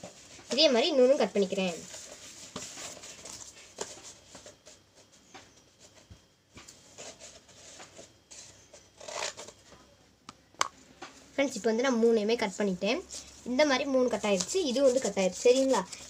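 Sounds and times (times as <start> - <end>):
craft knife scraping cardboard: 6.8 - 9.6, 14.2 - 16.0.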